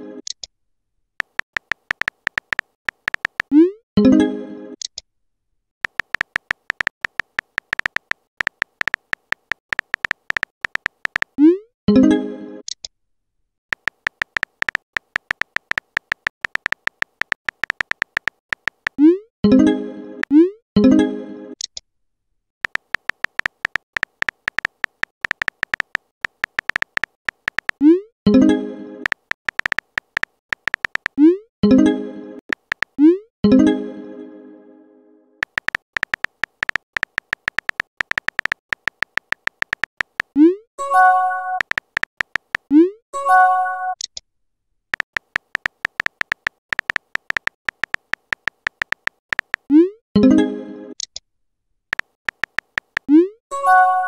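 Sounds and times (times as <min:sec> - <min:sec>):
keyboard electronic blips: 0:01.2 - 0:04.1, 0:05.8 - 0:11.6, 0:13.7 - 0:20.5, 0:22.6 - 0:33.2, 0:35.4 - 0:44.0, 0:44.9 - 0:50.3, 0:51.9 - 0:54.0.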